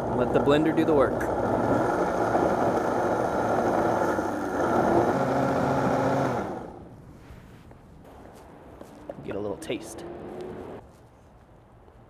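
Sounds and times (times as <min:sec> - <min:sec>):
blender motor running: 0:00.0 - 0:06.8.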